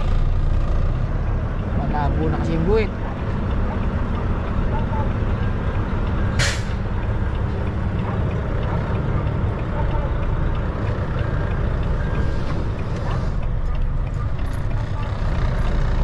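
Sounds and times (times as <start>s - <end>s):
diesel truck engine rumbling: 0.0s - 16.0s
air brakes hissing: 6.4s - 6.9s.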